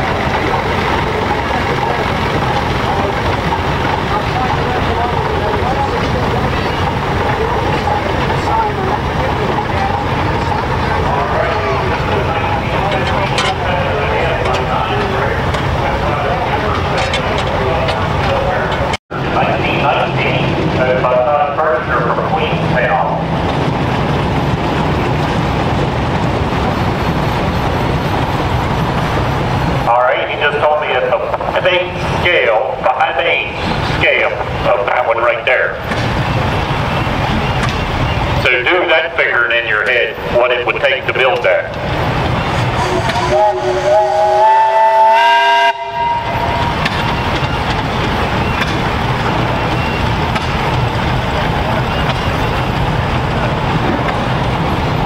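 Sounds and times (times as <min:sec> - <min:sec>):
steam traction engine clattering: 0:00.0 - 0:55.0
steam whistle: 0:42.8 - 0:46.9.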